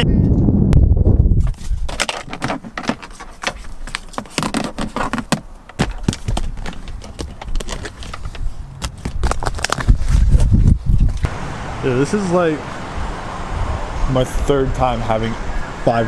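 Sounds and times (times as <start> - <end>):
hand rummaging in car console: 1.5 - 9.8.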